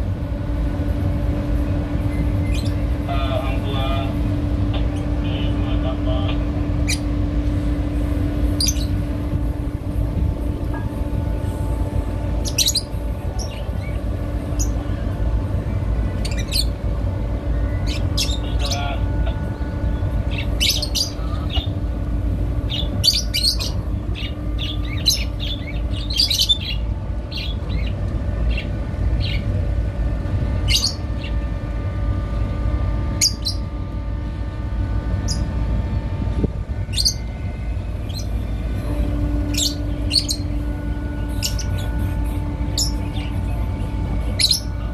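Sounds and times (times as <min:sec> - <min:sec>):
faint engine hum: 0:00.0 - 0:44.9
steady low rumble: 0:00.0 - 0:44.9
small birds chirping: 0:39.5 - 0:40.6.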